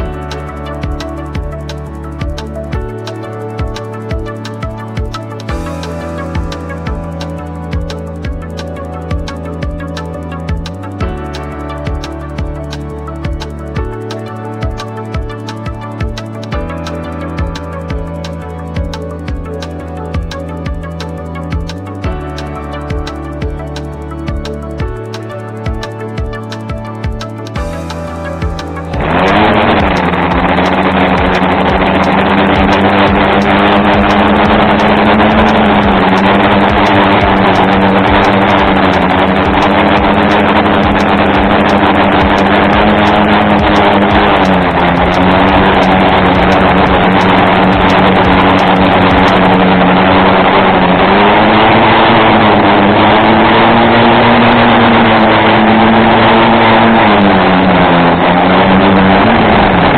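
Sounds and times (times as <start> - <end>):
drone motors and propellers whining: 22.9 - 59.9.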